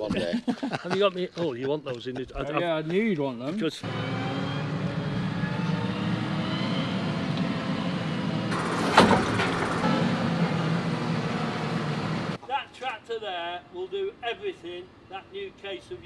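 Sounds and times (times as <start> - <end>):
tractor engine running: 3.8 - 12.4
sharp clunk: 8.5 - 10.7.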